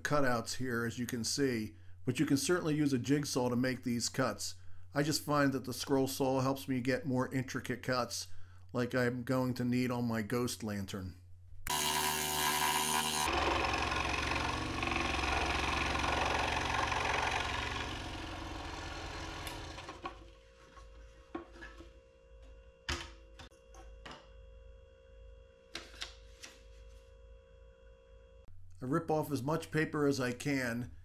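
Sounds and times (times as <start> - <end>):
scroll saw buzzing: 11.7 - 20.2.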